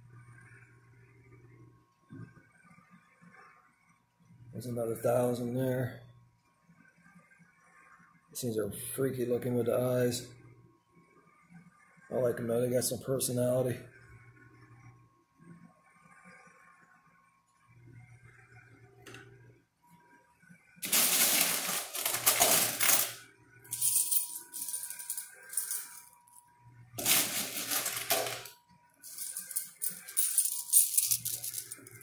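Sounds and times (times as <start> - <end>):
coins spilling and clattering: 20.8 - 26.2, 27.0 - 32.0.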